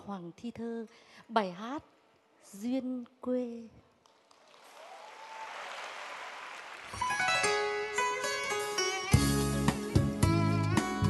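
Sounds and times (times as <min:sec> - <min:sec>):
audience applause: 0:04.3 - 0:07.5.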